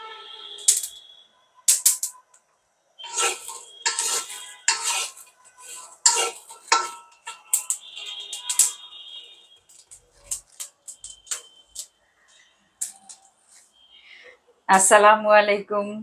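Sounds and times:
wooden spatula scraping metal wok: 0:03.0 - 0:08.9, 0:09.7 - 0:11.9.

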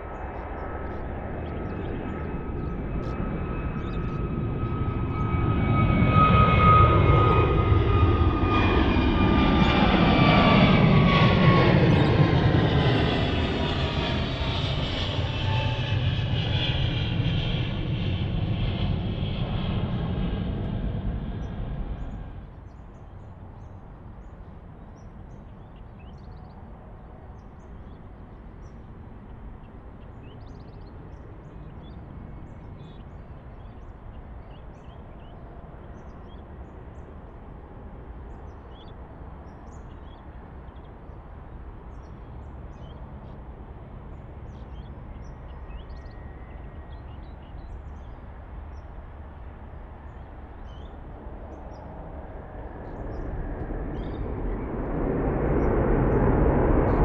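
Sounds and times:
jet engines roaring: 0:00.0 - 0:22.6, 0:40.2 - 0:57.0
birds chirping: 0:00.0 - 0:37.1, 0:38.2 - 0:43.4, 0:44.1 - 0:54.7.

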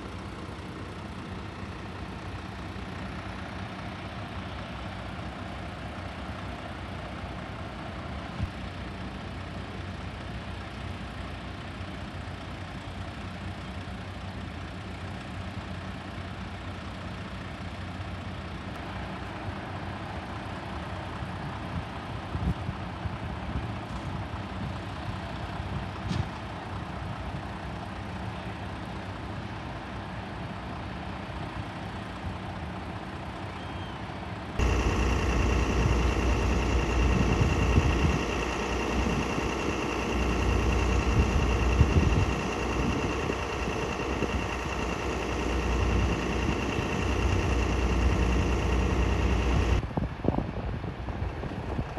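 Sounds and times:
engine idling: 0:00.0 - 0:21.3, 0:34.6 - 0:49.8.

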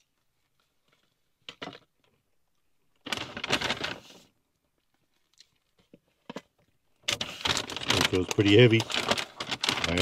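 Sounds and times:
paper packaging rustling: 0:03.0 - 0:04.3, 0:07.0 - 0:10.0.

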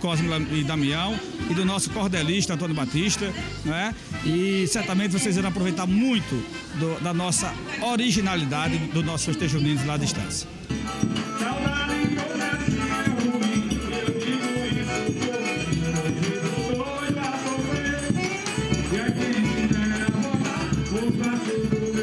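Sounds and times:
accordion melody: 0:00.0 - 0:22.0
bass drum beat: 0:08.2 - 0:22.0
high rattling percussion: 0:10.7 - 0:22.0.

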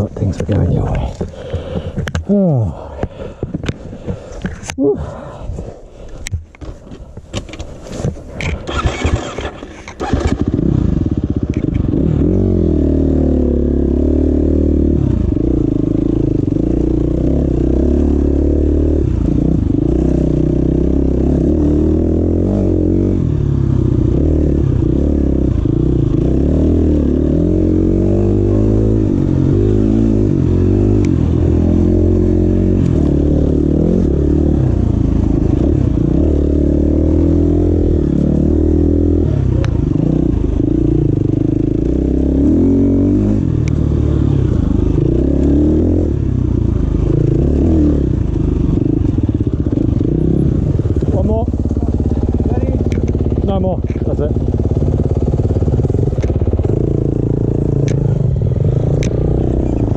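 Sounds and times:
irregular knocks and clatter: 0:03.0 - 0:04.7
dirt bike engine revving: 0:08.6 - 0:59.9.

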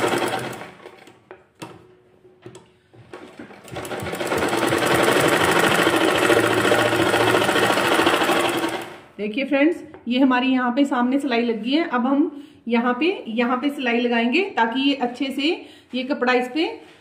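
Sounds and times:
sewing machine stitching: 0:00.0 - 0:01.2, 0:03.0 - 0:09.1.

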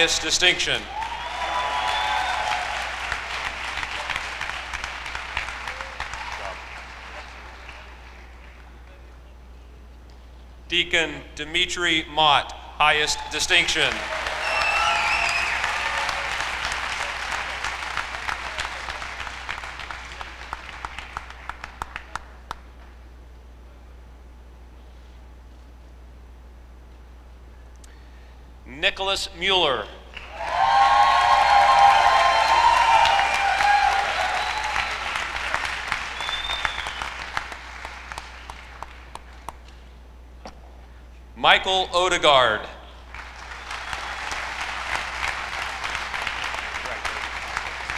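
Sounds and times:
audience applauding: 0:00.9 - 0:08.8, 0:13.1 - 0:22.7, 0:30.1 - 0:39.6, 0:43.1 - 0:47.9.

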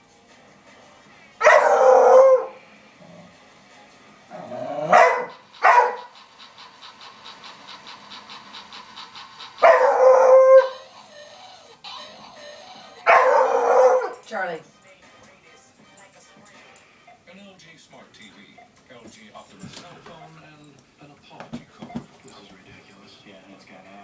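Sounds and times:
dog barking: 0:01.4 - 0:02.6, 0:04.8 - 0:06.2, 0:09.6 - 0:10.8, 0:13.0 - 0:14.2.

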